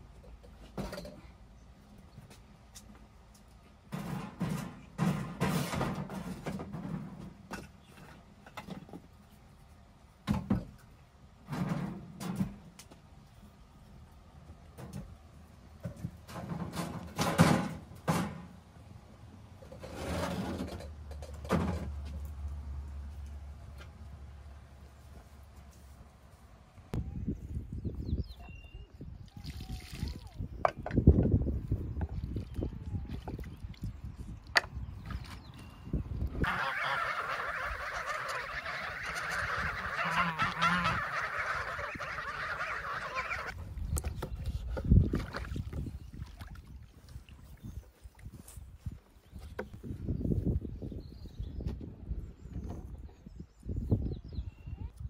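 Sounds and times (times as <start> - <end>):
geese honking: 36.4 - 43.5.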